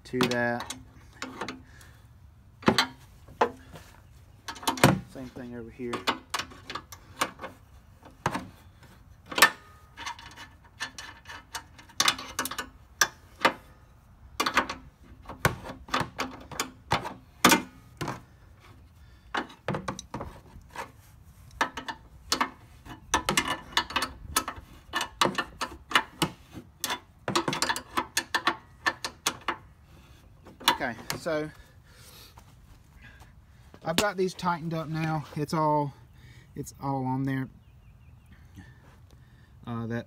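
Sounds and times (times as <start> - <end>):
wrench clicking on metal bolts: 9.3 - 13.6, 21.5 - 29.7.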